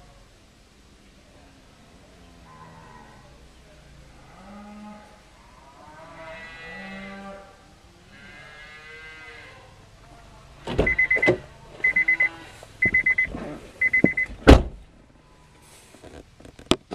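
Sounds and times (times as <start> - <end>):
cow mooing: 2.3 - 3.4, 4.2 - 9.8, 11.9 - 12.9
electronic beeper beeping: 10.8 - 14.3.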